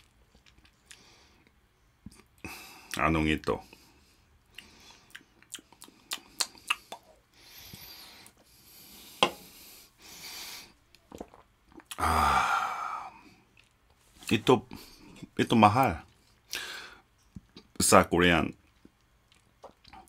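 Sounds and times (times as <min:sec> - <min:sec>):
sipping and swallowing: 0:11.0 - 0:12.0.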